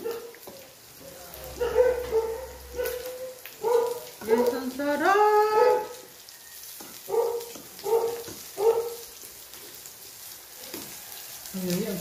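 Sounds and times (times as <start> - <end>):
dog barking: 0.0 - 0.4, 1.5 - 4.2, 5.5 - 6.0, 7.1 - 9.1
meat sizzling on a grill: 0.0 - 12.0.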